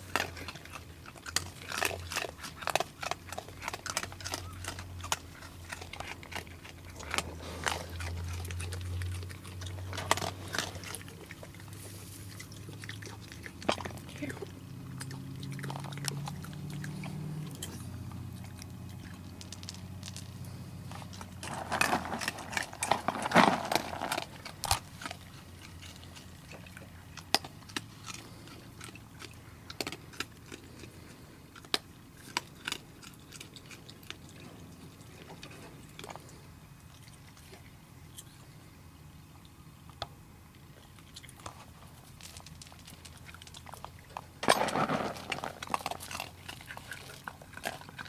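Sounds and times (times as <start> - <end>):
raccoons crunching and chewing: 0.0 - 48.0.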